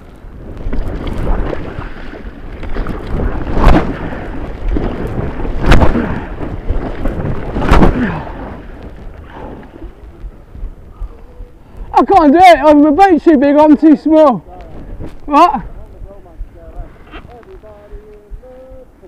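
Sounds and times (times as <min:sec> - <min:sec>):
water splashing against kayak: 0:00.0 - 0:19.0
heavy thuds: 0:00.6 - 0:11.9.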